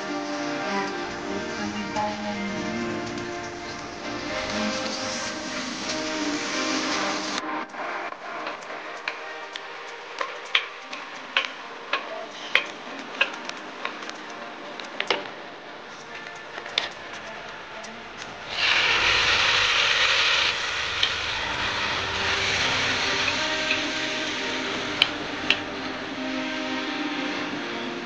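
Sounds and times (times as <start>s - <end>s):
loud steady sizzle: 0.0s - 15.1s, 15.9s - 28.0s
onion frying in oil: 18.5s - 24.9s.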